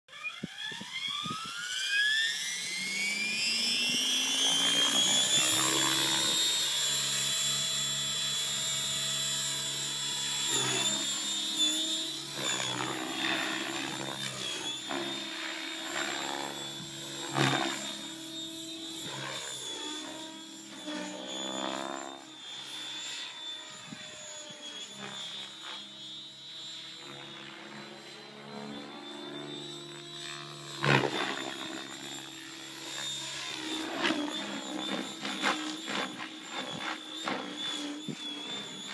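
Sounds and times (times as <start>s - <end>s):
electric motor whine: 0.1s - 38.9s
helicopter rotor swish: 3.2s - 8.6s, 9.2s - 22.2s, 30.2s - 38.9s.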